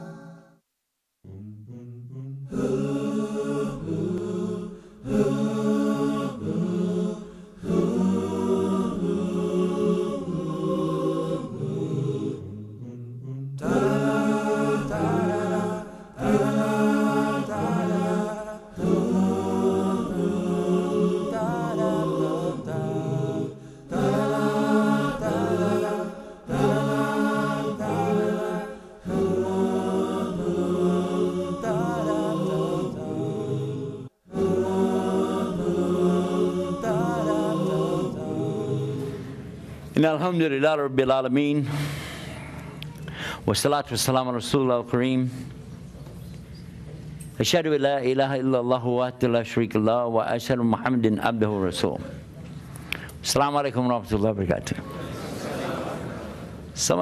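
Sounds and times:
vocal chanting: 0.0 - 0.6, 1.2 - 45.4.

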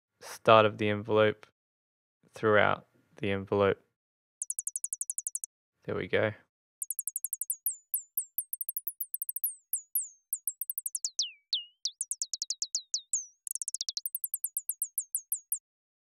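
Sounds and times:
synthesized bird chirps: 4.4 - 5.5, 6.8 - 15.6.

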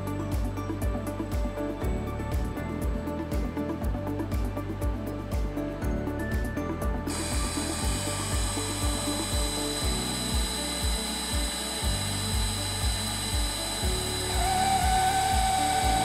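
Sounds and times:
background music with beat: 0.0 - 16.0
welding machine whine and hiss: 7.1 - 16.0.

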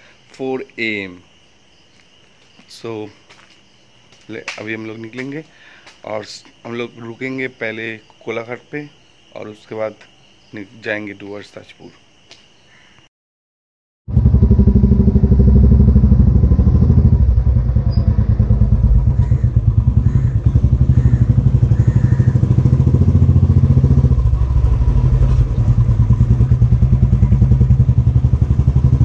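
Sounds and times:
motorcycle engine running: 14.1 - 29.0.

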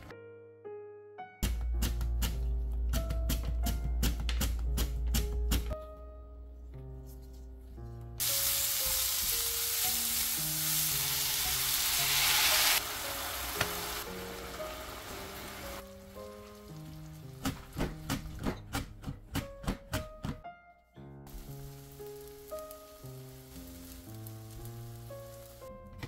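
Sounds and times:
food sizzling in a wok: 8.2 - 17.4, 21.3 - 25.7.

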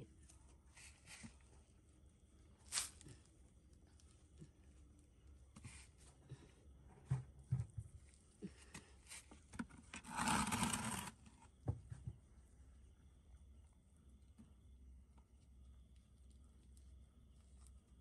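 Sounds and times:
straw rustling: 2.6 - 3.3.

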